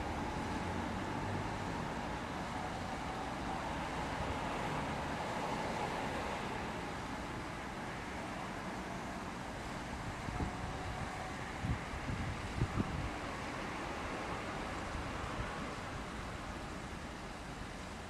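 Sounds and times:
wind gusts on microphone: 9.9 - 16.3.

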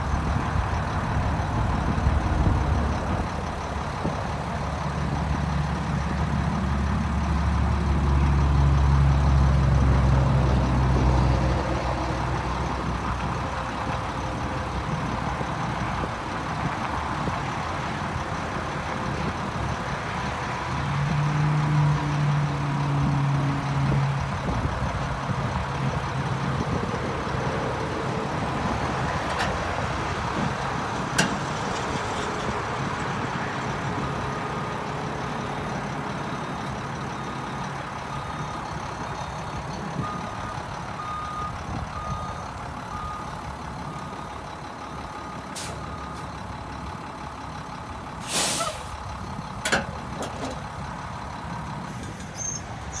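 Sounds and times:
diesel truck engine idling: 0.0 - 53.0
high backup beeps: 40.0 - 44.4, 45.1 - 46.4
air brake hiss: 45.6 - 45.8, 48.2 - 49.0.

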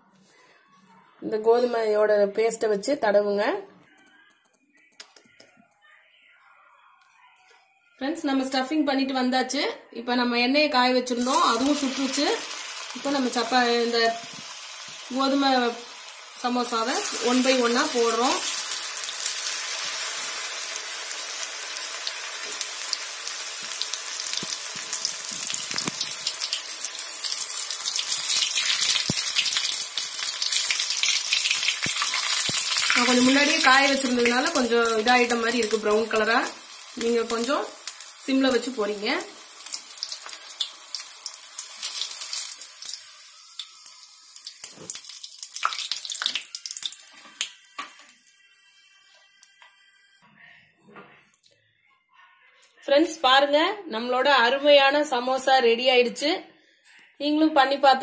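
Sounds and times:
deep-frying sizzle and crackle: 11.1 - 50.2.

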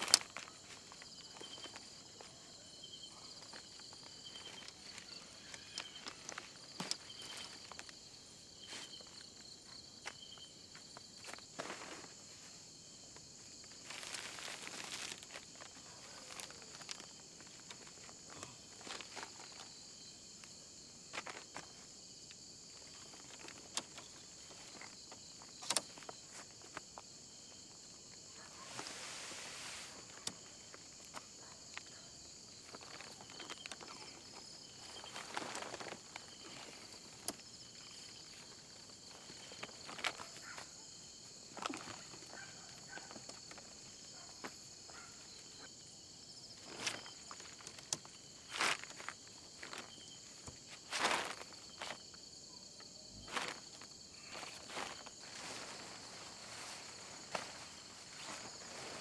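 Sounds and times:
crickets chirring: 0.0 - 59.0
footsteps: 10.0 - 12.6, 46.6 - 52.1, 53.2 - 59.0.

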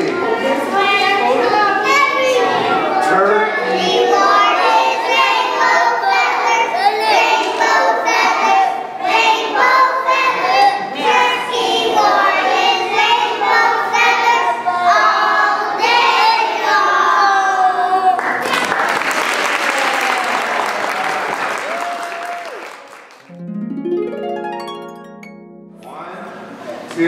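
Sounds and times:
children singing in unison: 3.6 - 17.9.

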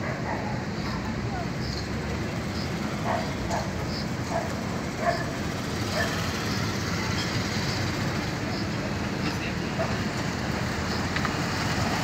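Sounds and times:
dog barking: 0.0 - 0.6, 3.0 - 6.2, 9.8 - 10.0.

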